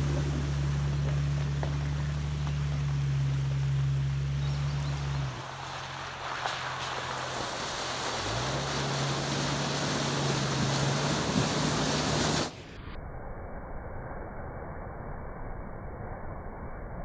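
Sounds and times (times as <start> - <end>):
water splashing and rushing: 0.0 - 12.7
engine low hum: 0.0 - 12.9.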